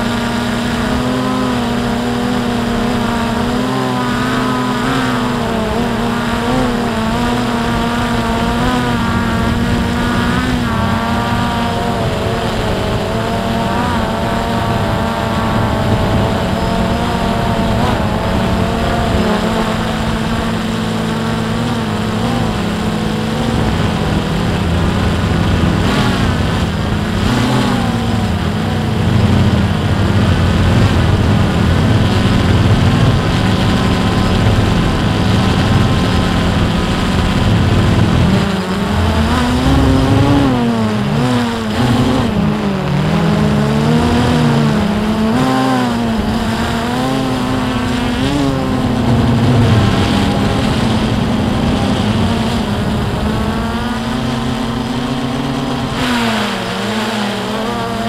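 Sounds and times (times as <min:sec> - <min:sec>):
drone propellers buzzing: 0:00.0 - 0:58.0.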